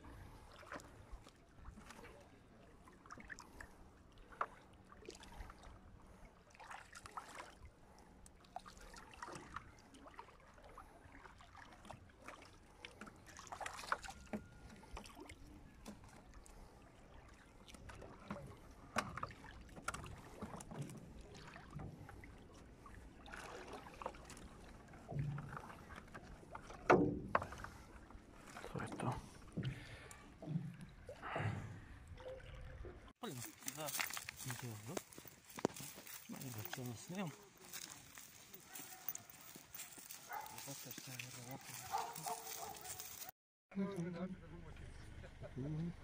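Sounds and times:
wet net rustling and dripping: 8.4 - 14.3, 23.2 - 25.0, 33.2 - 43.4.

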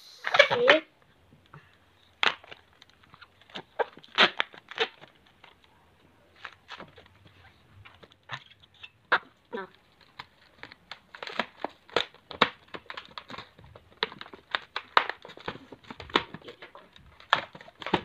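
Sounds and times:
balloon squeaking: 0.0 - 1.0, 2.1 - 5.3.

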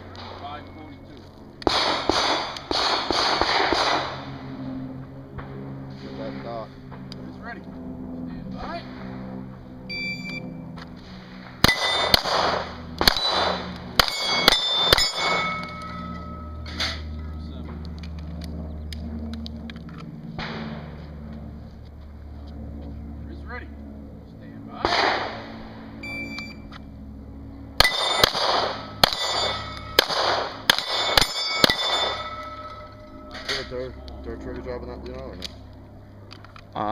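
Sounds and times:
handgun shots: 1.6 - 4.1, 11.6 - 15.8, 24.8 - 25.4, 27.8 - 32.5
steel target clanging: 11.6 - 17.1, 27.8 - 34.0.

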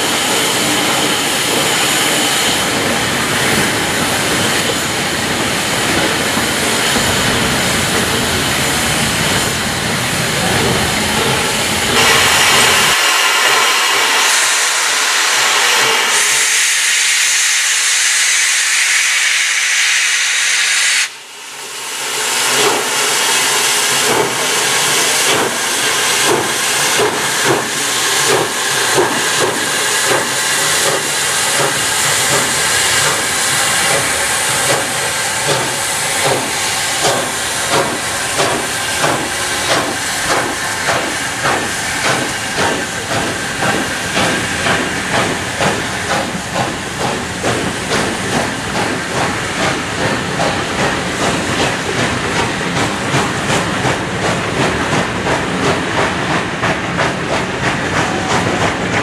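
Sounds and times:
steam locomotive exhaust chuffs: 0.0 - 59.0.

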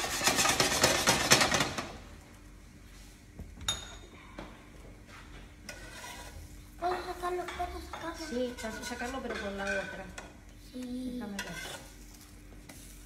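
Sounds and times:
pan scraping on metal grate: 5.7 - 6.5.

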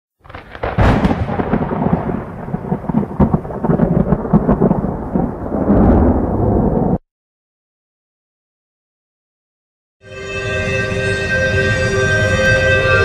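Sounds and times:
thunderclap with rolling rumble: 0.2 - 7.0.

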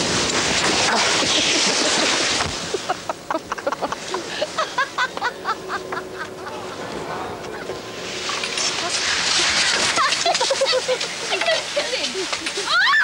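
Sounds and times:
loud rushing hiss: 0.0 - 4.8, 6.6 - 12.2
women crying out: 12.7 - 13.0.

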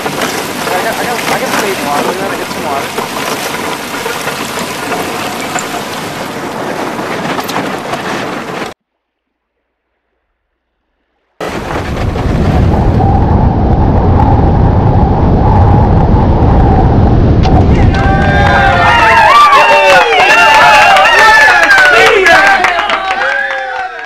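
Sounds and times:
ice knocking on hull: 0.0 - 8.8
steady rumbling rush: 0.0 - 8.8, 10.2 - 21.0
water rushing past boat hull: 0.0 - 22.5.

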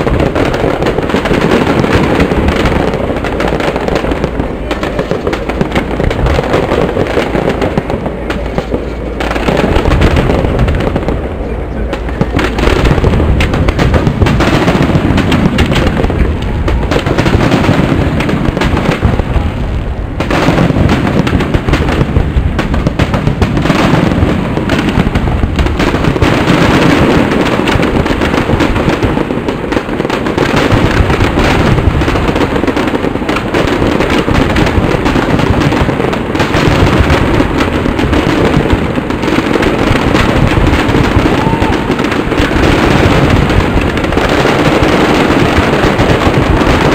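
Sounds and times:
fireworks bursting and crackling: 0.0 - 46.9.

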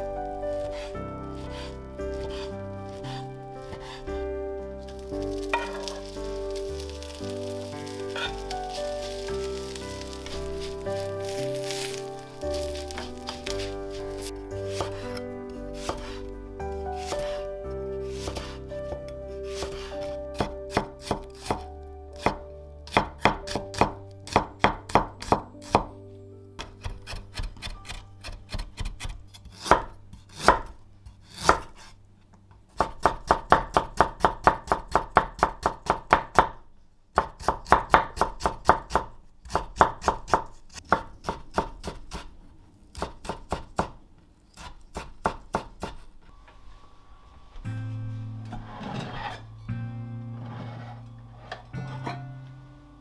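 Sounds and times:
knife chopping on wooden board: 11.0 - 15.0, 15.8 - 16.2, 17.0 - 17.4, 18.1 - 18.6, 19.5 - 25.9, 44.6 - 46.0.

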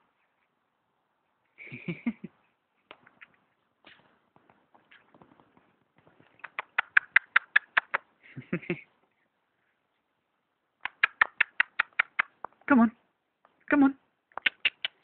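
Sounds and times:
low scuffling noise: 2.5 - 6.4
person making kissing noises: 6.3 - 8.1, 10.8 - 12.7, 14.3 - 15.0.

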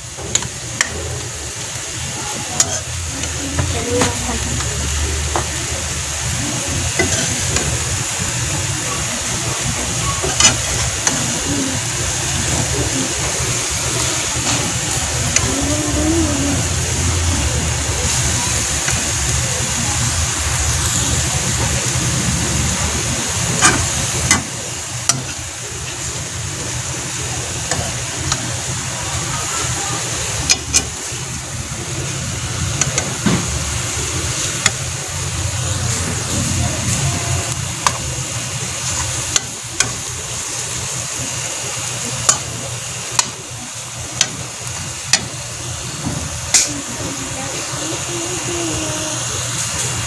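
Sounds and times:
meat and vegetables sizzling in pan: 0.0 - 50.0
metal spoon scraping pan: 2.6 - 2.9.

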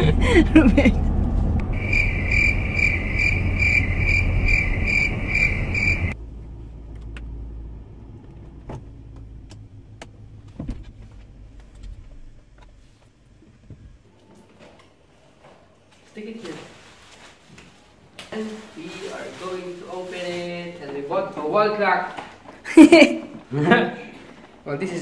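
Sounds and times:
low hum in car interior: 0.0 - 14.2
road and engine rumble: 0.0 - 15.0
high electronic car chime: 1.7 - 6.2.

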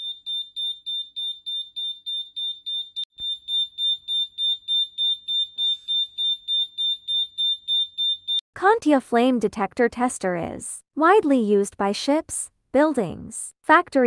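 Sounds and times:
fire alarm beeping: 0.0 - 8.4.

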